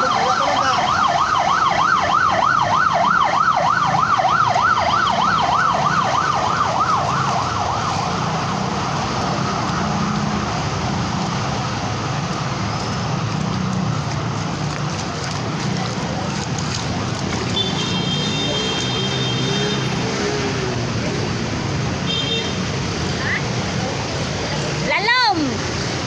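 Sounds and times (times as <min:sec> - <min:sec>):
siren yelping: 0:00.0 - 0:08.8
traffic through water rushing: 0:00.0 - 0:26.0.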